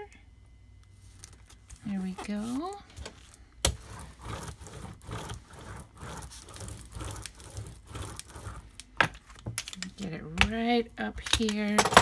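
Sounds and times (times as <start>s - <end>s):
paper being rubbed: 3.8s - 8.7s.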